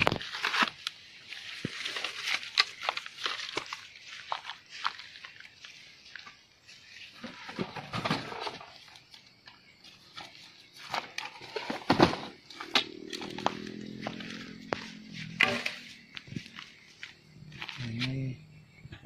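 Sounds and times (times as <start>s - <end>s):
wooden boards knocking and scraping: 10.8s - 13.5s.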